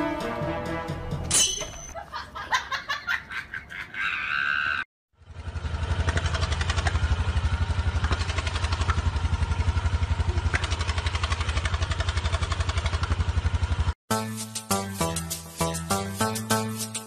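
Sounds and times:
quad bike engine idling: 0:05.2 - 0:13.9.

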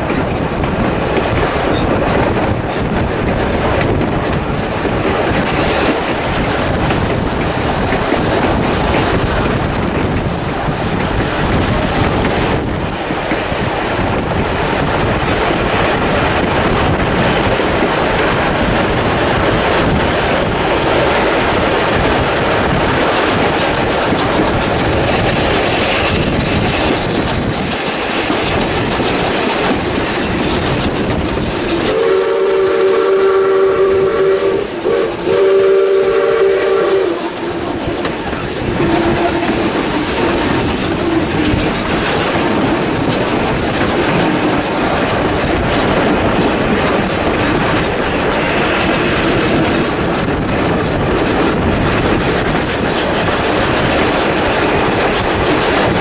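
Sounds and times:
train wheels clattering on rails: 0:00.0 - 0:56.0
wind: 0:00.0 - 0:56.0
steam locomotive chime whistle: 0:31.8 - 0:41.2.

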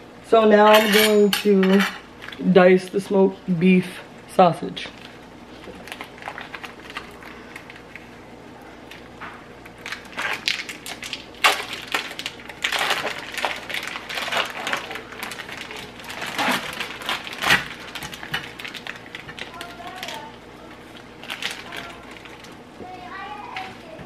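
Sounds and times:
plastic package crinkling: 0:05.0 - 0:08.1, 0:08.9 - 0:22.6.

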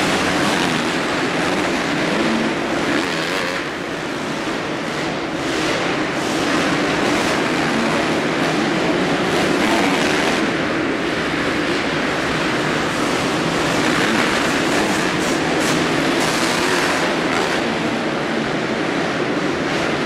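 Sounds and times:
motocross bikes revving: 0:00.0 - 0:18.8.

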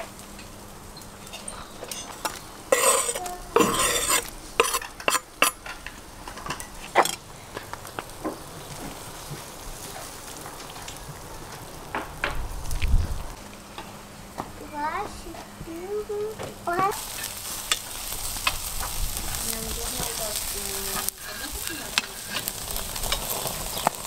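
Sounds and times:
skimmer stirring soup: 0:01.2 - 0:07.2, 0:16.8 - 0:24.0
knife scraping wooden board: 0:02.8 - 0:05.2.

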